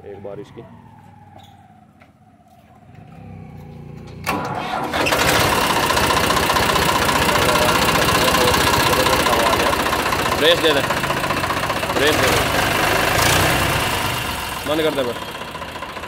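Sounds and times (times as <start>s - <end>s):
diesel tractor engine starting: 2.9s - 16.0s.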